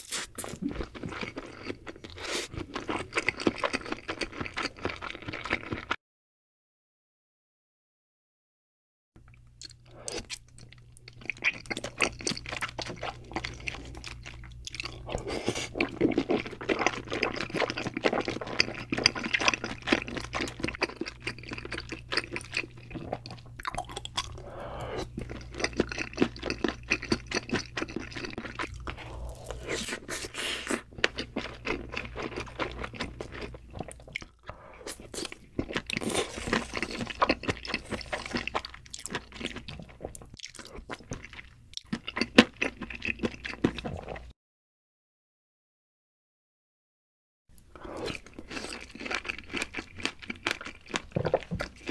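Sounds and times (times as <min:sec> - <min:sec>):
wet chewing: 0:09.6 - 0:44.2.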